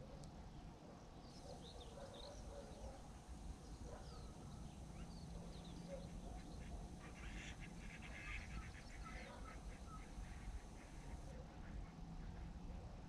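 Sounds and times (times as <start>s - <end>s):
flock of birds calling: 4.0s - 11.3s.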